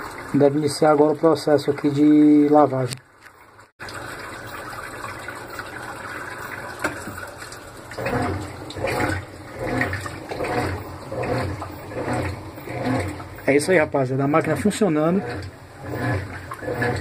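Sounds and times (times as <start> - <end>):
washing machine agitator churning: 0.0 - 17.0.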